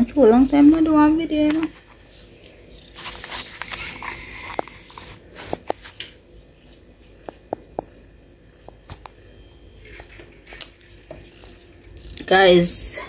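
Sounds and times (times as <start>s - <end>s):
handling noise on phone microphone: 1.4s - 7.9s.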